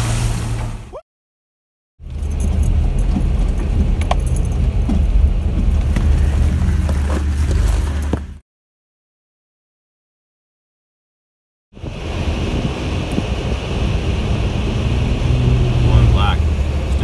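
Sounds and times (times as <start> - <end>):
low engine hum: 2.0 - 8.4, 11.8 - 17.0
clicks knocks and rattles: 2.1 - 6.2.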